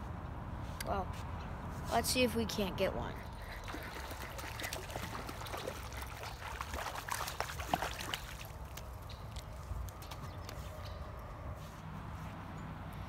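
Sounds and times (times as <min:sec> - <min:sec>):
creek water trickling: 0:03.1 - 0:11.1
water splashing: 0:03.2 - 0:09.7.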